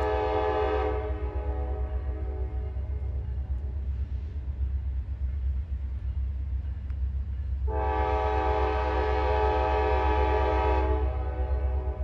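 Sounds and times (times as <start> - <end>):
train air horn: 0.0 - 2.8, 7.7 - 12.0
low train rumble: 0.0 - 12.0.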